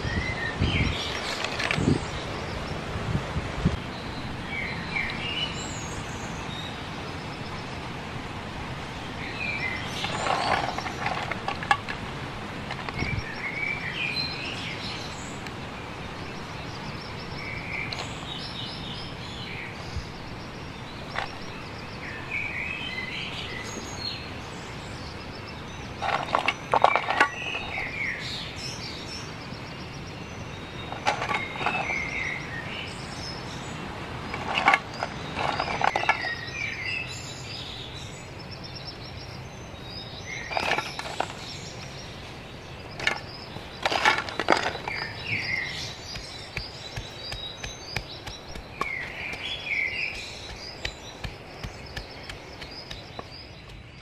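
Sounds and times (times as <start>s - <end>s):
birds chirping: 0.0s - 54.0s
steady outdoor hiss: 0.0s - 54.0s
mussel shells clattering on grill: 43.0s - 45.2s.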